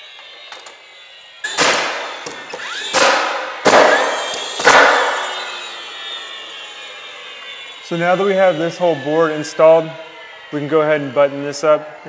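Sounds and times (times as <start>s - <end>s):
nail gun shots: 1.5s - 5.2s.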